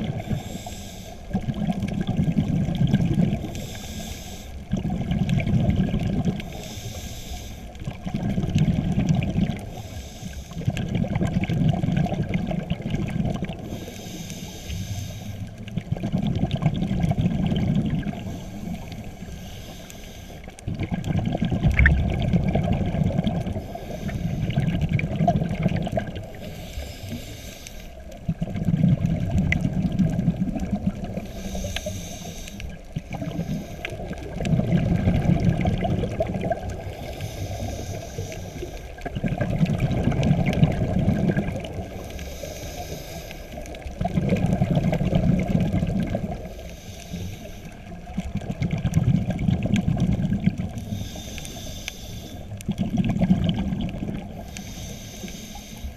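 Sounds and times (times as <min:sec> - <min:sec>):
regulator inhale hiss: 0:00.0 - 0:01.5, 0:03.3 - 0:04.8, 0:06.4 - 0:07.9, 0:09.5 - 0:10.8, 0:13.4 - 0:15.8, 0:18.0 - 0:20.7, 0:23.4 - 0:25.2, 0:26.2 - 0:28.3, 0:30.5 - 0:34.6, 0:36.5 - 0:39.6, 0:41.7 - 0:44.0, 0:45.0 - 0:48.4, 0:50.6 - 0:52.8, 0:54.2 - 0:55.9
exhaled air bubbling: 0:00.0 - 0:55.9.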